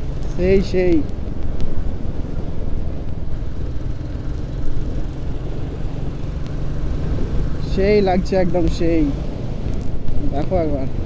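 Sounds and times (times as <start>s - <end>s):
motorcycle engine rumble: 0.0s - 11.0s
road noise: 0.0s - 11.0s
wind noise: 0.0s - 11.0s.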